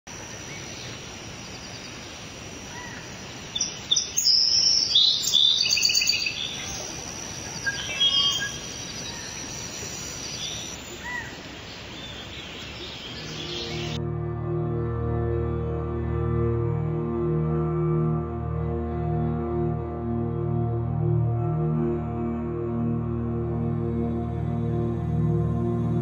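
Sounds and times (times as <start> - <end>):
birds calling and singing: 0.1 - 14.0
outdoor background hiss: 0.1 - 14.0.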